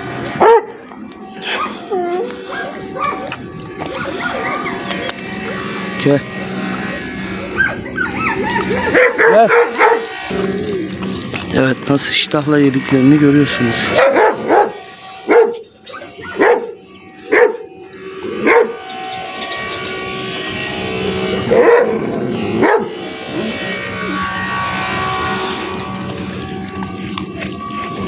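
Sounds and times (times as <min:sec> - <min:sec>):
dog barking: 0:02.5 - 0:03.3, 0:07.6 - 0:10.0, 0:14.0 - 0:15.6, 0:16.3 - 0:16.7, 0:17.3 - 0:17.7, 0:18.5 - 0:18.7.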